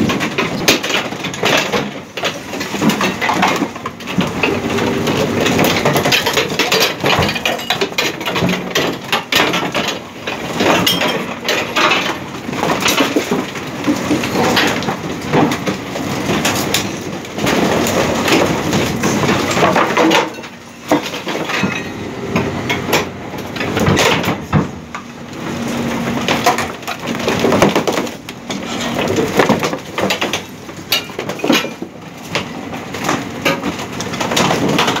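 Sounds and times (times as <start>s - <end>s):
wood cracking and splintering: 0.0s - 21.7s, 22.4s - 35.0s
garbage truck hum: 0.0s - 35.0s
metal frames clanking and scraping: 0.9s - 13.2s, 16.4s - 24.7s, 28.4s - 30.5s.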